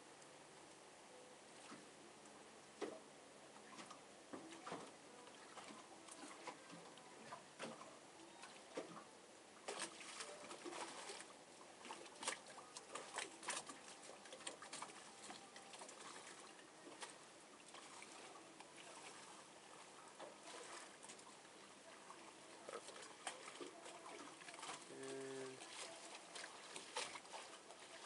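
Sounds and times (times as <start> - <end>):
low steady hiss: 0.0 - 28.0.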